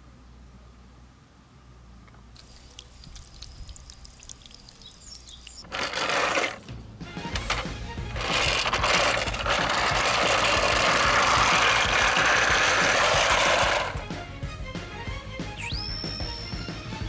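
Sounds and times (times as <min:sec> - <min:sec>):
water trickling into stone basin: 0:02.3 - 0:06.6.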